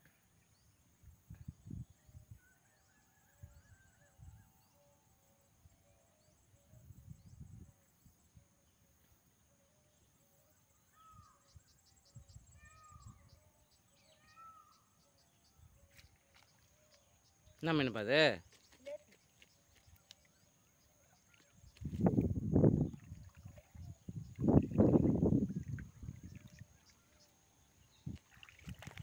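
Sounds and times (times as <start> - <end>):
soft bird chirps: 10.0 - 29.0
low rumbles on microphone: 21.8 - 26.7.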